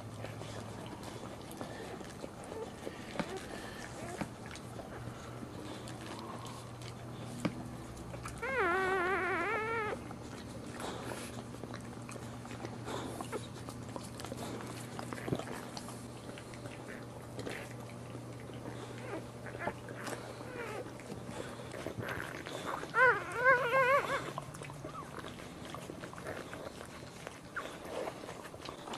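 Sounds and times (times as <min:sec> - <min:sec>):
steady low hum: 0:00.0 - 0:28.9
puppy crying: 0:08.2 - 0:10.1, 0:18.9 - 0:21.1, 0:22.0 - 0:28.1.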